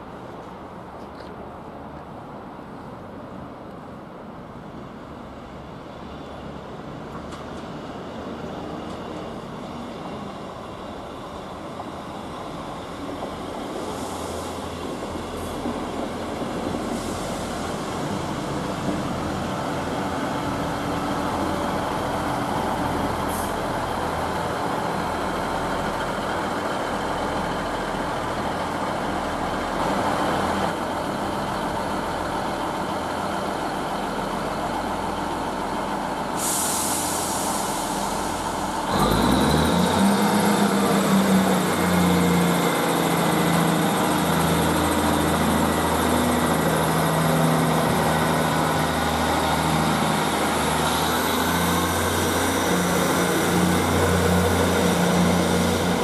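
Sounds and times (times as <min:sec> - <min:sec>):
train engines running: 0:00.0 - 0:56.0
hiss: 0:13.6 - 0:15.9, 0:16.7 - 0:18.3, 0:36.3 - 0:40.5.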